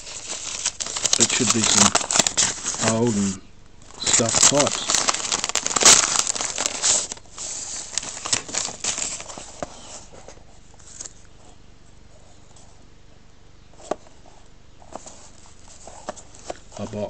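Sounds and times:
paper crinkling and rustling: 0.0s - 11.3s.

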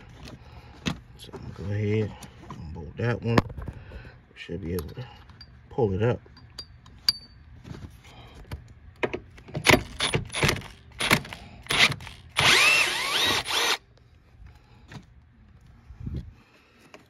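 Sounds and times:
power driver motor whirring: 11.0s - 13.8s.

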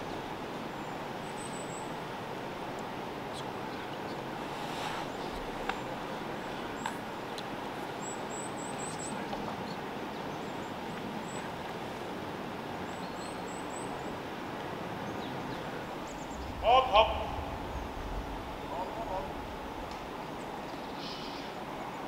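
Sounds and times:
steady rushing hiss: 0.0s - 22.0s
faint clicks: 19.8s - 21.2s.

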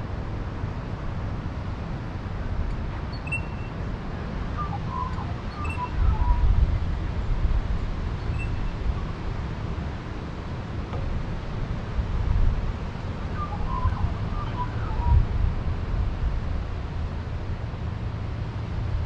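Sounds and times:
gusty wind rumble: 0.0s - 19.0s
faint bird chirps: 3.1s - 3.8s, 4.6s - 6.5s, 8.2s - 8.8s, 13.4s - 15.2s.

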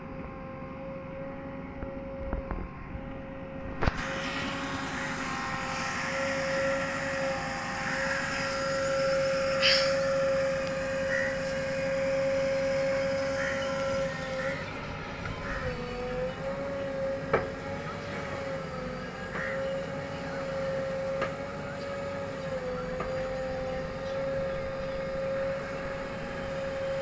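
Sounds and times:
steady high whine: 0.0s - 27.0s
brief high squeak: 9.3s - 10.2s.

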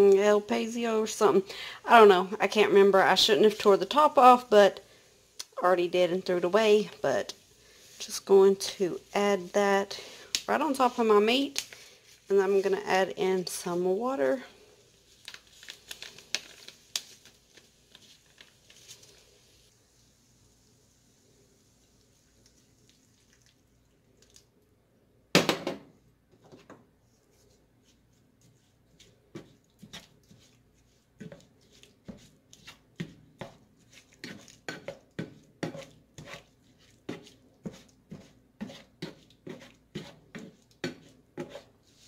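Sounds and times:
spatula scraping a skillet: 27.4s - 42.0s.

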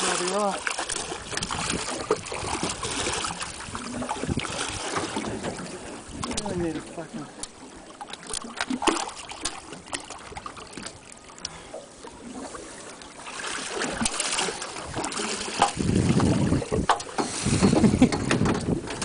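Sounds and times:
water splashing: 0.0s - 19.0s
wind buffeting microphone: 1.0s - 7.0s, 14.8s - 19.0s.

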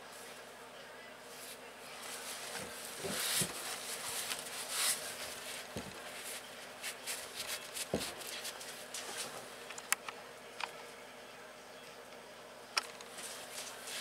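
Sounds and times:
cloth rubbing on microphone: 1.4s - 9.4s.

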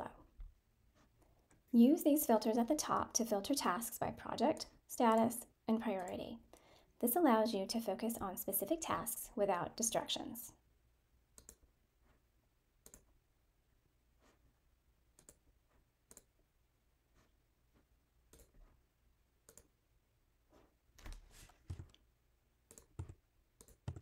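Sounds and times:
computer mouse clicks: 6.0s - 6.2s, 11.4s - 11.6s, 12.8s - 13.1s, 15.2s - 15.4s, 16.1s - 16.3s, 18.3s - 18.6s, 19.4s - 19.7s, 22.7s - 24.0s.

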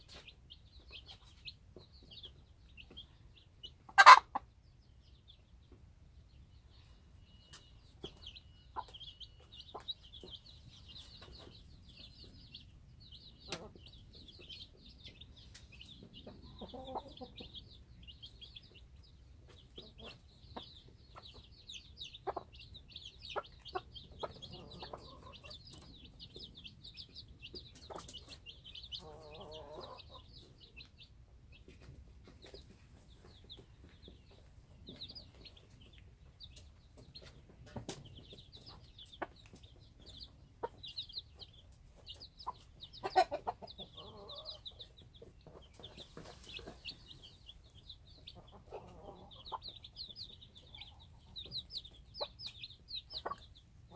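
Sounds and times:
hen clucking: 0.0s - 5.8s, 7.2s - 53.9s
chicks peeping: 0.0s - 53.9s
beaks pecking at dirt: 13.2s - 31.0s.

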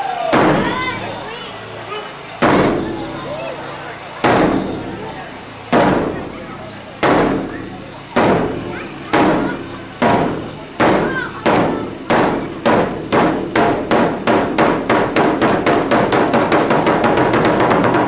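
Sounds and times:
taiko drums booming: 0.3s - 1.0s, 2.4s - 3.3s, 4.2s - 5.0s, 5.7s - 6.3s, 7.0s - 18.0s.

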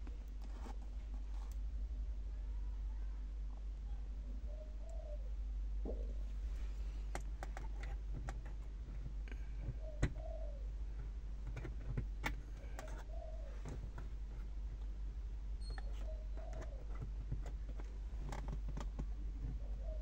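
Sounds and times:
low steady hum: 0.0s - 20.0s
dove cooing: 4.3s - 6.2s, 8.9s - 14.6s, 15.8s - 17.6s, 19.1s - 20.0s.

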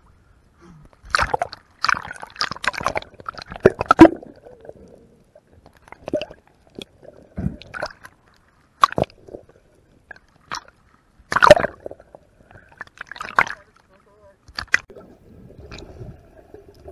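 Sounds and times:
muffled underwater clicks: 12.8s - 14.9s.

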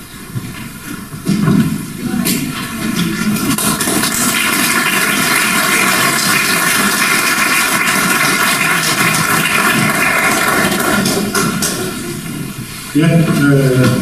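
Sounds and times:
audience applauding: 3.4s - 11.8s.

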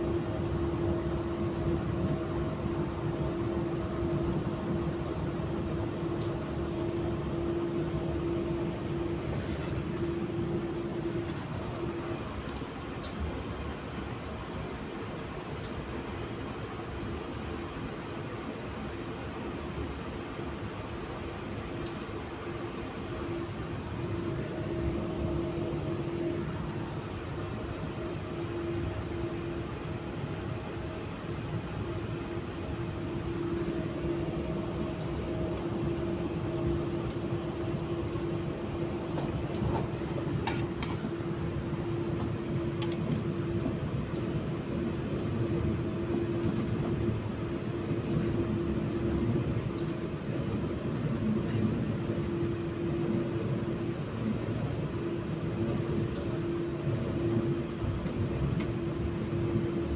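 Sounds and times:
constant hum: 0.0s - 59.9s
train wheels rumbling on rails: 23.2s - 59.7s.

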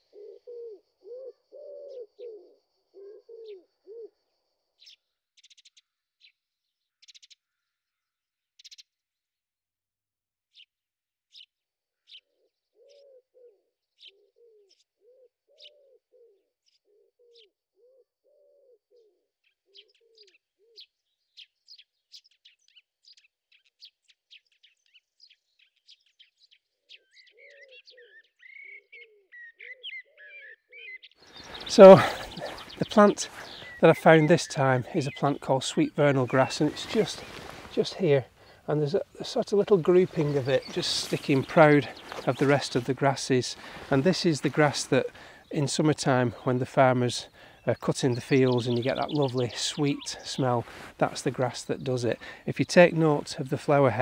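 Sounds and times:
pigeon cooing: 0.0s - 4.1s, 12.8s - 20.8s, 31.3s - 35.8s, 36.4s - 42.7s
songbirds chirping: 0.0s - 7.7s, 12.1s - 54.0s.

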